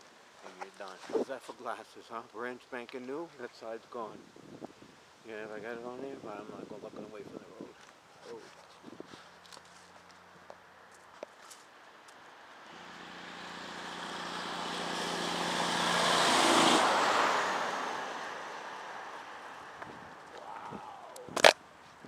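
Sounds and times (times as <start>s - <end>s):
car passing on asphalt: 9.3s - 20.4s.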